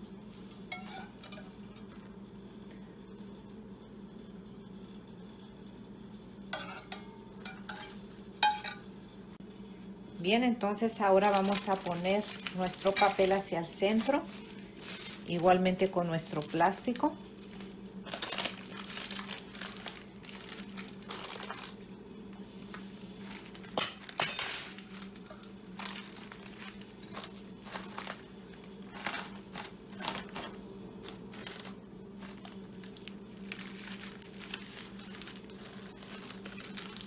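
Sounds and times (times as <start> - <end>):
low steady hum: 0.0 - 37.0
cling wrap and paper crinkling: 10.8 - 37.0.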